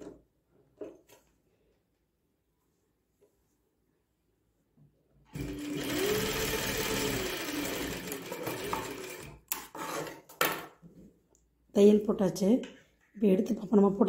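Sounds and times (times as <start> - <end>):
sewing machine running: 5.3 - 9.6.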